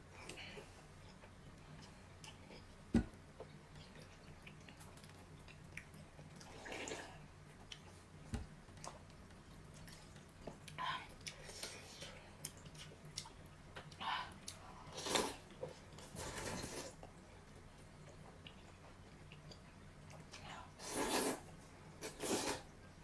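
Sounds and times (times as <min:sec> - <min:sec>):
slurping noodle soup: 0:14.9 - 0:15.4, 0:20.8 - 0:22.7.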